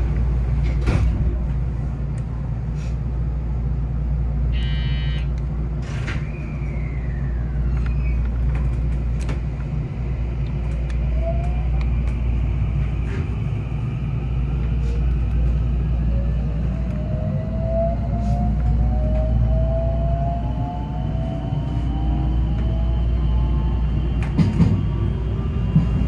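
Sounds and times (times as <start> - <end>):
train inverter whine: 0.0 - 26.0
train low rumble: 0.0 - 26.0
short electronic tone: 4.5 - 5.3.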